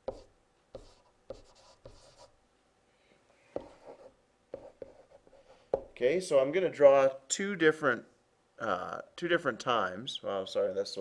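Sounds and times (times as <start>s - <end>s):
stylus scratching on tablet: 0.0s - 2.4s, 3.5s - 6.0s.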